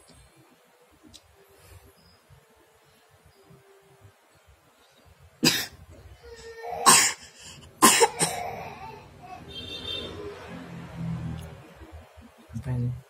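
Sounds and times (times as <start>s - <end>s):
child coughing: 5.4s - 5.8s, 6.8s - 7.2s, 7.8s - 8.8s.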